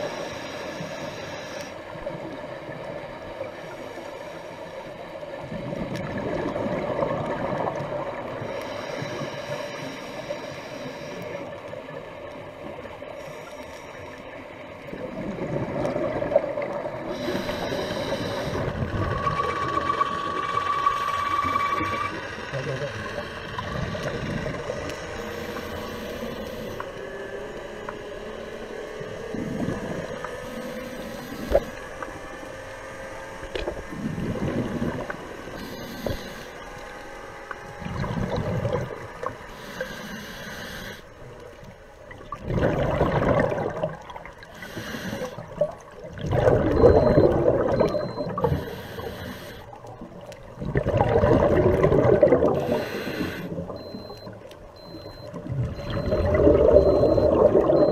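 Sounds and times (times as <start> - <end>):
hissing regulator inhalations: 0.0 - 1.9, 8.4 - 11.8, 17.1 - 27.0, 35.6 - 36.9, 39.4 - 41.2, 44.4 - 45.7, 46.8 - 49.9, 52.5 - 57.9
exhaled bubbles underwater: 5.3 - 9.2, 14.8 - 26.9, 29.0 - 31.8, 33.5 - 36.3, 37.8 - 39.4, 42.1 - 57.9.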